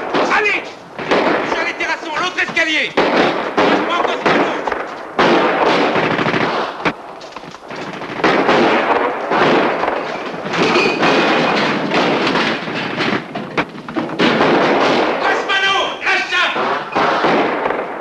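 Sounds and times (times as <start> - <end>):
rapid gunfire bursts: 0.0 - 7.0, 7.6 - 18.0
single gunshot cracks: 2.6 - 7.0, 7.6 - 13.2, 14.2 - 15.4, 16.5 - 18.0.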